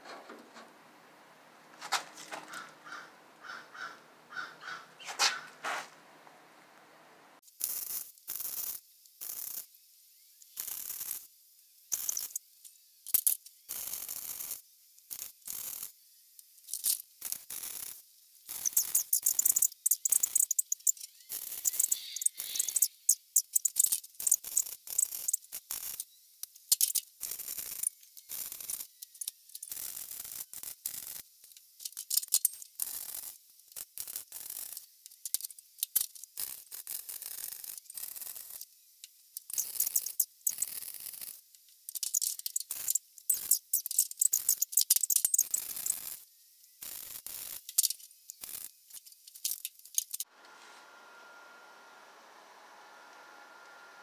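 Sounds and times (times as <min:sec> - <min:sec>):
faint steady hiss: 0:00.0 - 0:03.4, 0:04.9 - 0:24.3.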